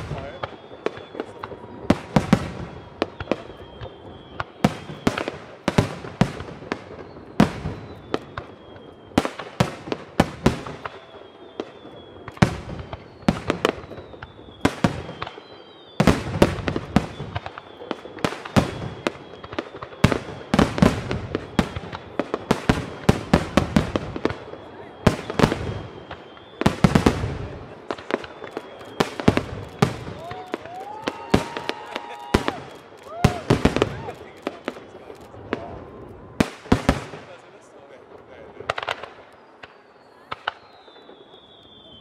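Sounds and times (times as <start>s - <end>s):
firework shells bursting: 25.3s - 35.7s.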